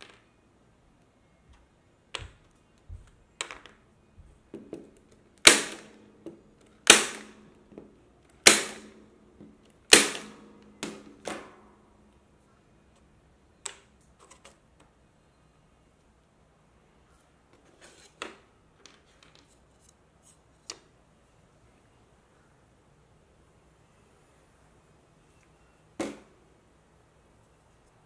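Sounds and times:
wooden blocks clicking and knocking: 0.0 - 0.4, 1.5 - 3.9, 12.9 - 15.0, 18.1 - 21.0
electric staple gun firing: 5.4 - 6.0, 6.8 - 7.4, 8.4 - 8.9, 9.9 - 11.0.

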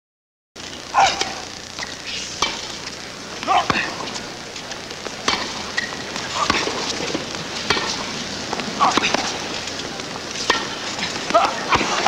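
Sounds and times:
crowd hiss: 0.6 - 12.0
racket hitting tennis ball: 1.0 - 2.8, 5.2 - 8.1, 8.8 - 9.4, 10.4 - 12.0.

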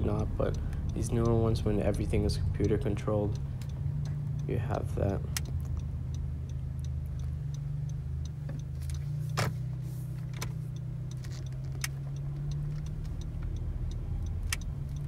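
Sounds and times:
car cabin engine and road hum: 0.0 - 15.0
turn signal ticking: 0.0 - 15.0
sharp clicks: 10.2 - 15.0.

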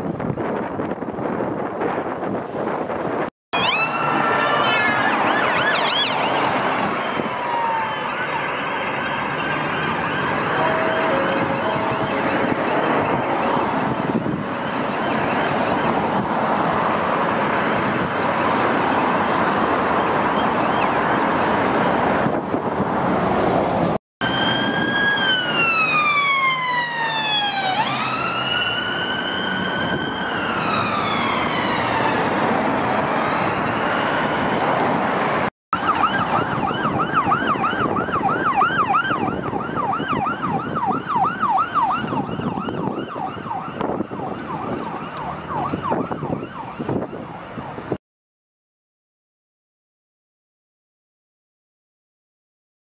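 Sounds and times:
road traffic: 0.0 - 48.0
siren fast yelp: 3.5 - 13.8, 24.2 - 34.5, 35.8 - 47.3
police siren wailing: 3.5 - 22.6, 24.2 - 48.0.

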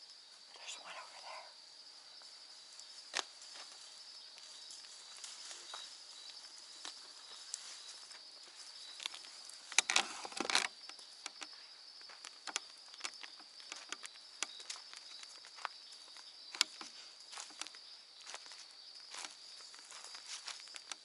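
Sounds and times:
night insects chorus: 0.0 - 21.0
footsteps crunching dry leaves: 2.4 - 10.6, 12.1 - 21.0
small snaps and ticks: 9.0 - 15.7, 16.5 - 17.8, 20.7 - 21.0.

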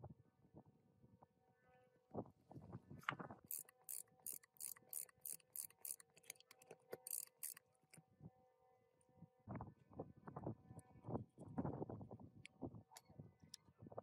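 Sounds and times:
ratchet wrench clicking: 3.5 - 7.6.

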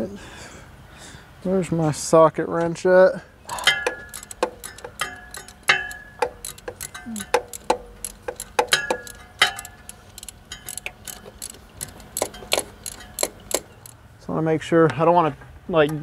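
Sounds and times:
ratchet wrench clicking: 3.5 - 14.0
sharp metallic clinks: 3.5 - 14.0.

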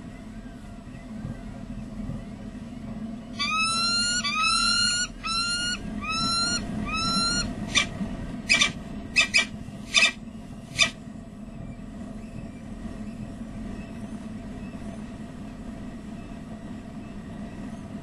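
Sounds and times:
steady low hum: 0.0 - 18.0
falcon calling: 3.4 - 7.9, 8.5 - 10.2, 10.8 - 11.0.

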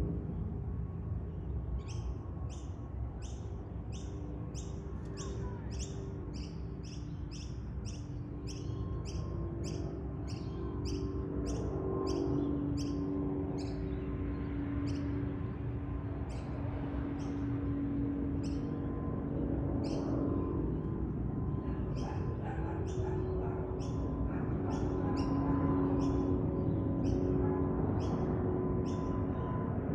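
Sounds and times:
distant jet engine rumble: 0.0 - 29.9
bird chirping: 1.8 - 13.0, 21.9 - 27.3, 28.0 - 29.4.

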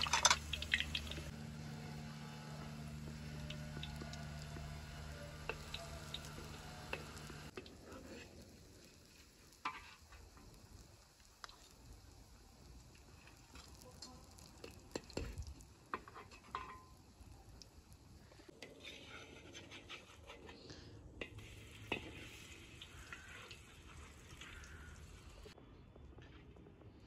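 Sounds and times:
pancakes frying in a pan: 0.0 - 20.4, 21.2 - 25.6
metal spatula scraping a pan: 9.6 - 10.2, 15.9 - 16.8, 18.6 - 20.8.

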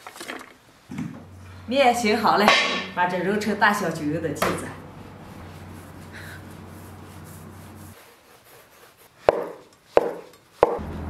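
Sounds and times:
dough rubbing on wooden board: 5.1 - 10.8.

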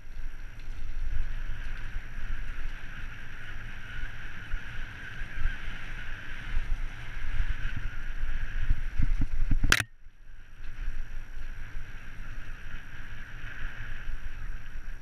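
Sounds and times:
bike tyres rushing over dirt: 0.0 - 15.0.

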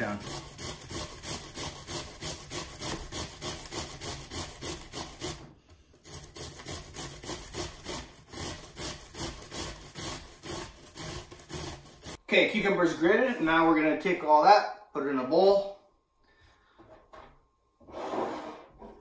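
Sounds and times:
cucumber grating on metal grater: 0.0 - 5.4, 6.0 - 12.2.

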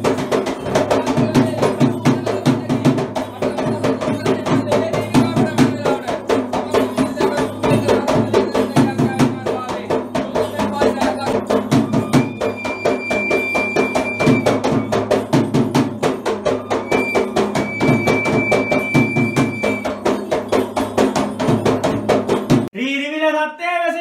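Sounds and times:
fast hand drumming: 0.0 - 22.7
man chanting: 0.8 - 12.6, 22.7 - 24.0.

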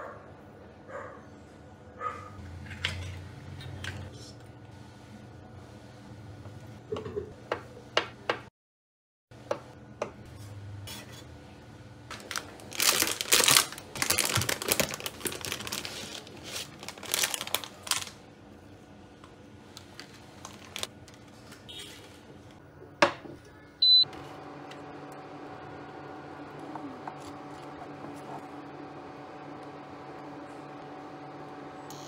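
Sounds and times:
plastic pack crinkling: 12.1 - 18.2, 19.8 - 21.3.

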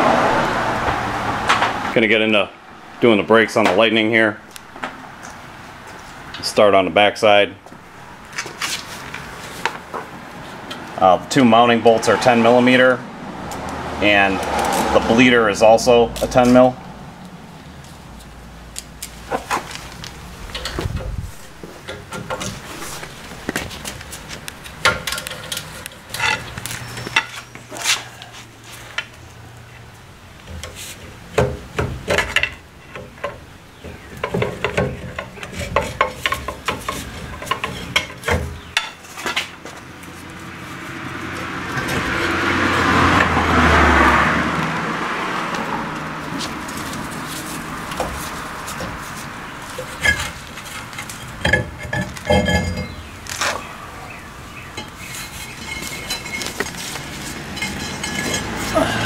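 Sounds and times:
broad rush of noise: 0.0 - 31.3
ratchet and wrench clinking: 54.8 - 58.8.

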